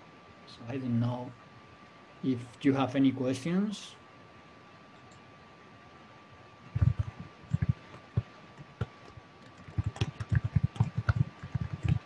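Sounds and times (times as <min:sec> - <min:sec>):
typing on computer keyboard: 0:06.8 - 0:12.0.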